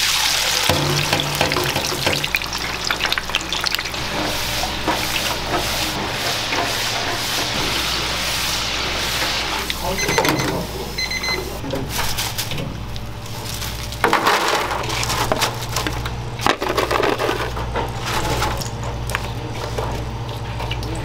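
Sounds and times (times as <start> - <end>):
fries rustling and scraping in pan: 0.1 - 10.0, 11.8 - 20.6
steady low hum: 0.5 - 12.0.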